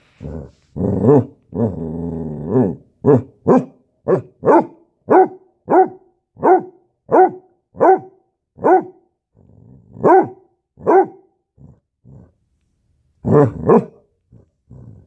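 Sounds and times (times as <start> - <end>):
dog growling: 0.1 - 3.2, 9.3 - 10.2, 11.6 - 12.4, 13.2 - 15.0
dog barking: 3.0 - 9.1, 10.0 - 11.3, 13.2 - 14.1.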